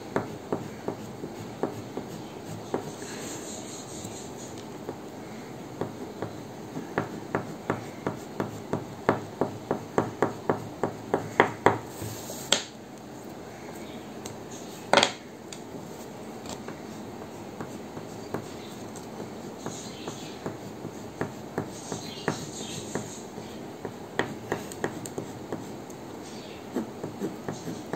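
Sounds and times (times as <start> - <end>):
crayon strokes on paper: 0.2 - 4.6.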